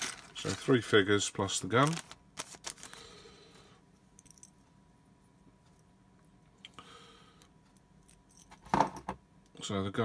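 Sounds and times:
plastic bag crinkling: 0.0 - 3.2.

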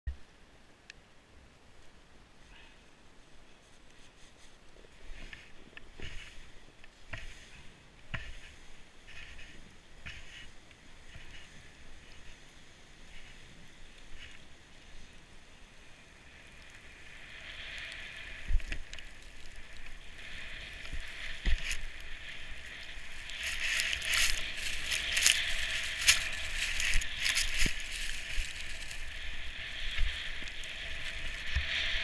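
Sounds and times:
sled hissing through snow: 7.2 - 32.0.

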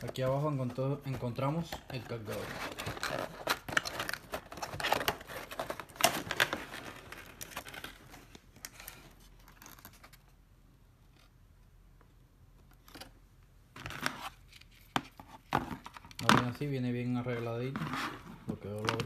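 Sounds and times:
cardboard scraping and crinkling: 0.0 - 9.2, 17.2 - 19.0.

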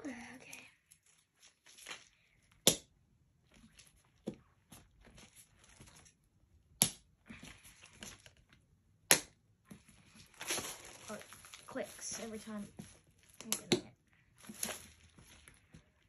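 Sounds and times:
plastic rustling and scraping: 0.8 - 2.5, 3.4 - 6.2, 9.7 - 13.5, 14.1 - 16.0.

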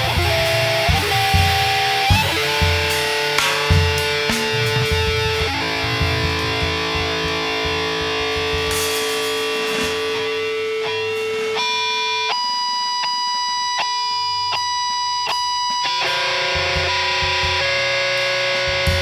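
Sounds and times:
drum kit: 0.0 - 13.6, 15.8 - 19.0
electric guitar sustained notes: 0.0 - 19.0
low drum thumps: 0.1 - 11.2.

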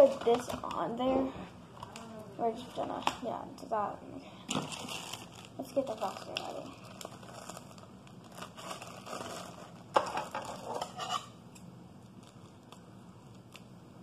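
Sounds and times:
plastic bag crinkling and rustling: 0.0 - 1.1, 4.5 - 11.0, 12.0 - 13.6.

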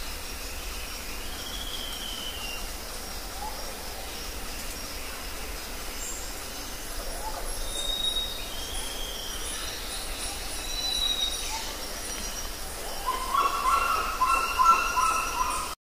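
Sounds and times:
thin high whistled bird calls: 1.4 - 2.7, 7.4 - 15.8.

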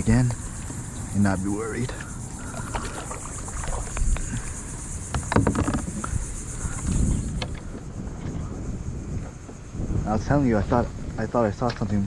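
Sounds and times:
high-pitched insect chorus: 0.0 - 12.0
gear knocking on plastic kayak: 5.1 - 6.1.

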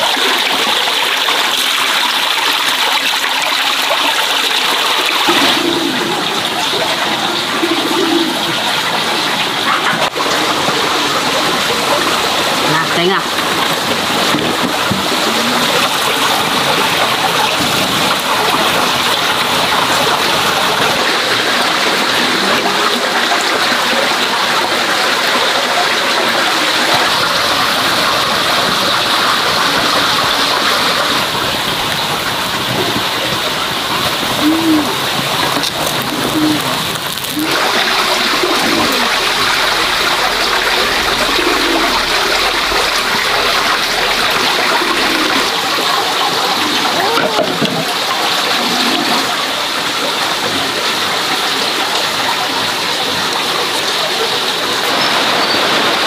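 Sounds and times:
sausages sizzling in hot fat: 34.4 - 41.3.

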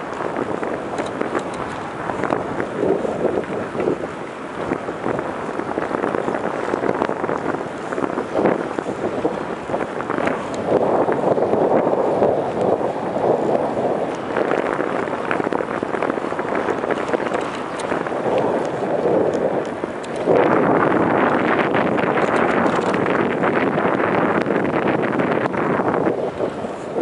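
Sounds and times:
wind buffeting microphone: 0.0 - 27.0
bicycle clicks and rattles: 0.9 - 2.4, 15.8 - 20.3, 22.0 - 23.2.

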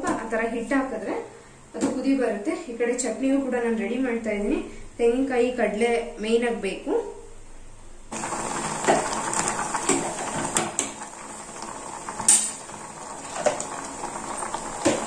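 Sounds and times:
ladle clanking on stovetop: 12.2 - 12.7.

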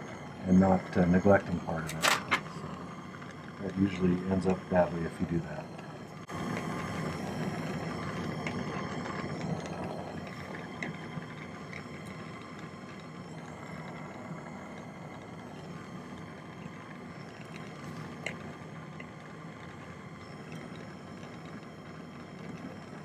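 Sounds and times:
soldering torch flame: 0.0 - 23.0.

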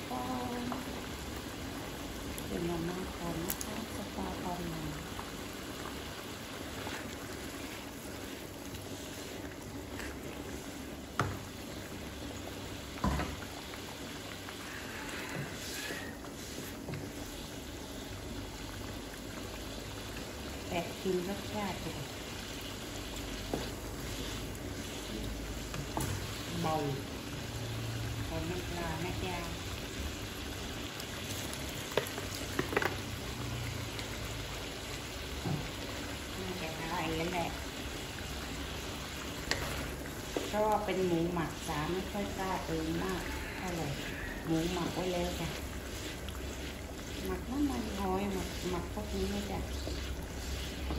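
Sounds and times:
curry bubbling in a wok: 0.0 - 50.9
metal spatula stirring: 39.4 - 50.9.

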